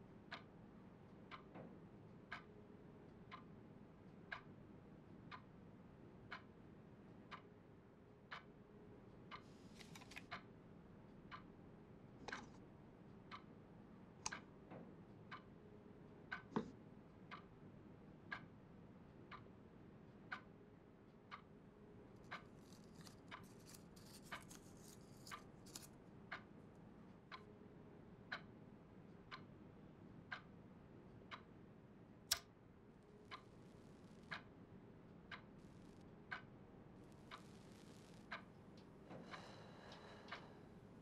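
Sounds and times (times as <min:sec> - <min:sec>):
clock ticking: 0:02.3 - 0:02.5, 0:13.3 - 0:13.5, 0:14.2 - 0:14.5, 0:16.3 - 0:17.5, 0:22.2 - 0:26.5, 0:27.3 - 0:27.5, 0:33.3 - 0:33.5, 0:34.2 - 0:34.5, 0:35.3 - 0:36.5.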